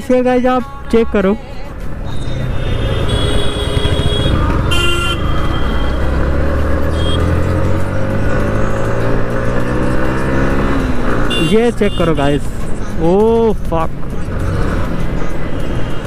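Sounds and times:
vehicle horns tooting: 2.1s - 6.1s, 6.9s - 7.4s, 11.2s - 12.3s
motorcycle engine accelerating: 2.4s - 11.4s.

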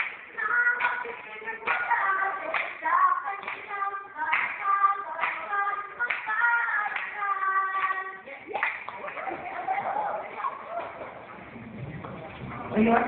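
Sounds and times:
hand claps: 0.0s - 2.8s, 3.4s - 3.7s, 4.3s - 9.6s.

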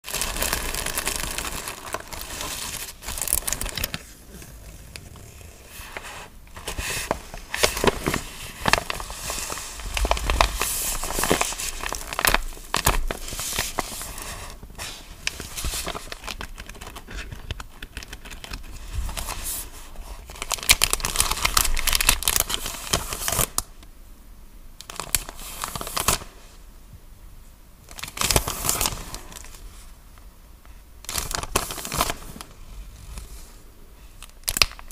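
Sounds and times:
paper crinkling and tearing: 0.0s - 23.7s, 24.9s - 26.4s, 27.9s - 29.7s, 31.0s - 33.4s
plastic bag crinkling: 0.0s - 23.7s, 31.1s - 32.6s.

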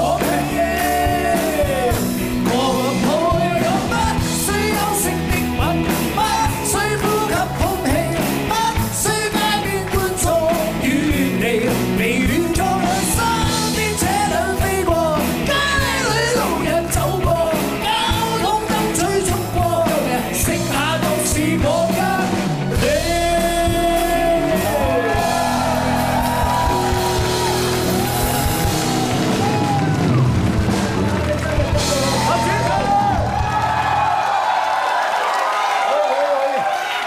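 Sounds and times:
men singing into microphones: 0.0s - 26.8s
rock backing music: 0.0s - 34.7s.

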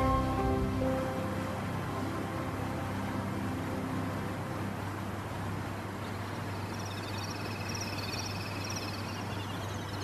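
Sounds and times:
low hum and hiss: 0.0s - 10.0s
high-pitched chirping calls: 6.6s - 10.0s.

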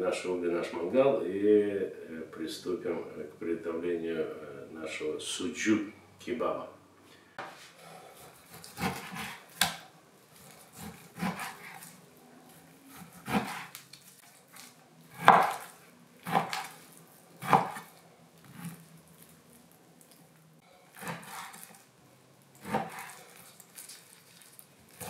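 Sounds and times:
knife slicing meat: 7.9s - 19.4s, 20.8s - 21.9s, 22.5s - 25.0s.

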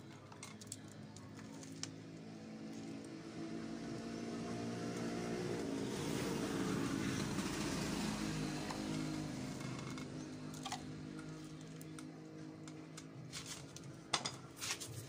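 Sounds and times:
vehicle passing by: 2.1s - 13.3s.

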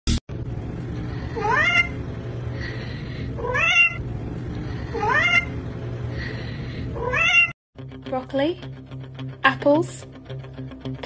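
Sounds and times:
cat meowing: 1.4s - 2.0s, 3.4s - 4.0s, 4.9s - 5.6s, 7.0s - 7.5s.

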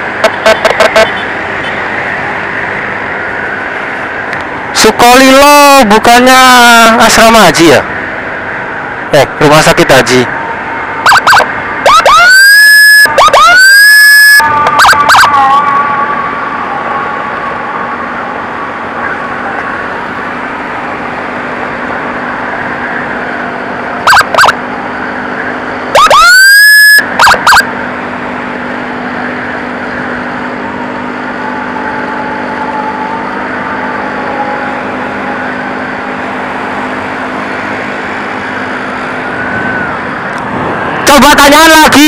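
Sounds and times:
road noise: 0.0s - 42.0s
electronic siren blips and wail: 11.0s - 18.1s, 22.9s - 24.8s, 25.9s - 27.8s, 31.2s - 36.2s, 41.0s - 42.0s
faint wavering siren tone: 28.5s - 37.4s.

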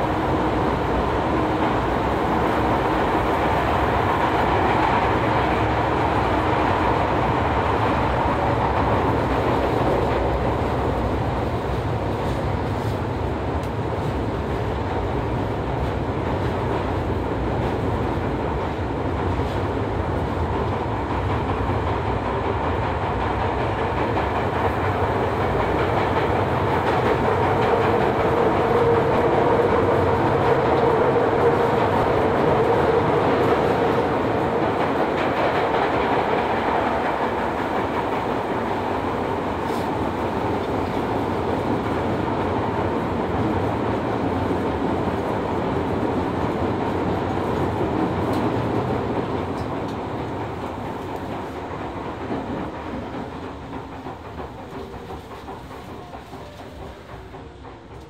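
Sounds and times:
subway car wheels rumbling on rail: 0.0s - 58.0s.

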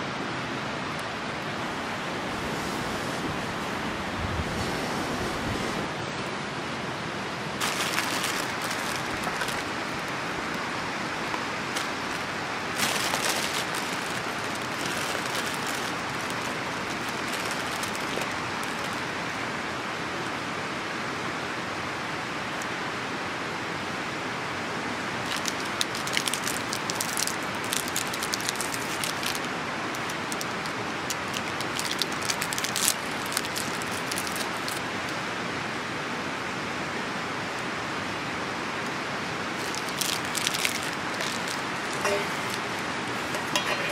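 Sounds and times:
steady rushing hiss: 0.0s - 35.7s, 37.2s - 43.9s
clicks and crackles: 7.6s - 19.2s, 25.2s - 34.8s, 39.6s - 43.9s.

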